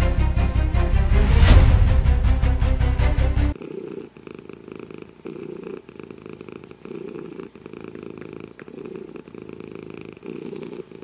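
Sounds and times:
cat purring: 0:03.5 - 0:11.0.

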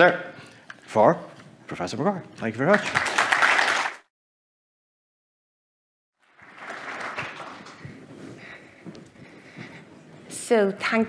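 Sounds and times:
audience applause: 0:02.7 - 0:04.1, 0:06.2 - 0:07.9.

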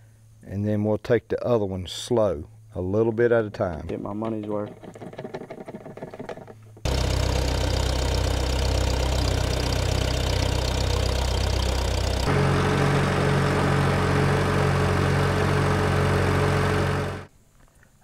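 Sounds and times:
tractor engine running: 0:06.8 - 0:17.3.

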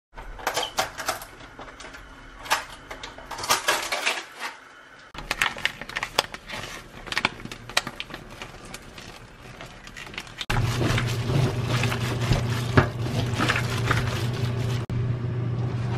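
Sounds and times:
paper bag crinkling: 0:05.2 - 0:14.9
steady running sound: 0:10.5 - 0:14.9.

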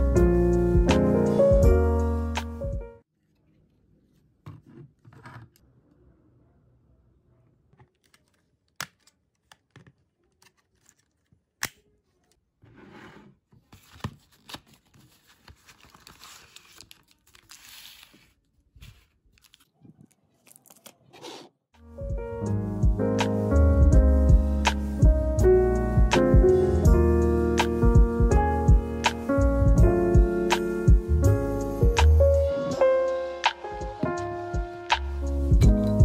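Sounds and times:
packaging crinkling and tearing: 0:08.0 - 0:11.6, 0:13.8 - 0:21.2.

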